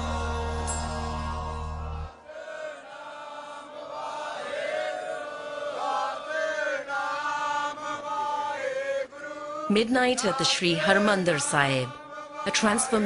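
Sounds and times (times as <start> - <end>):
low music drone: 0.0 - 2.3
slow devotional chanting: 0.0 - 13.0.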